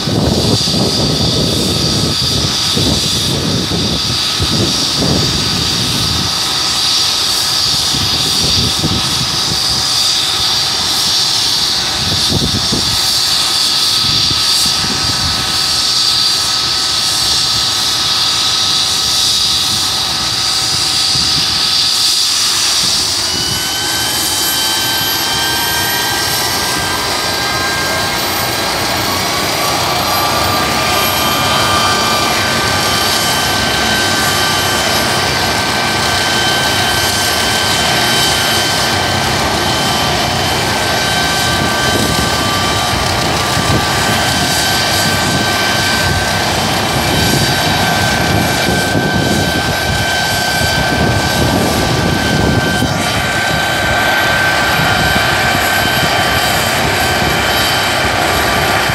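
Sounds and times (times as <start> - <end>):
helicopter turbine whine: 0.0 - 58.9.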